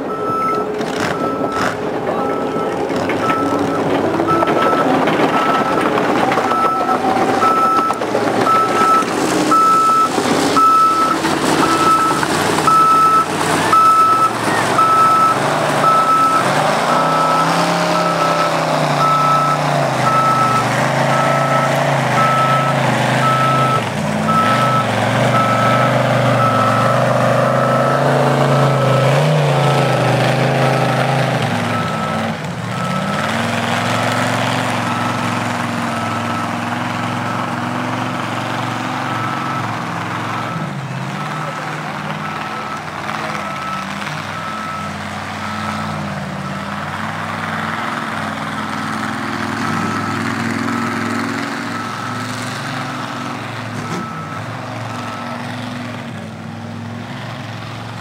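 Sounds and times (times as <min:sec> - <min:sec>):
heavy engine running: 0:00.0 - 0:58.0
reversing alarm beeping: 0:00.1 - 0:31.0, 0:51.6 - 0:55.8
knocks and clatter: 0:02.7 - 0:13.7.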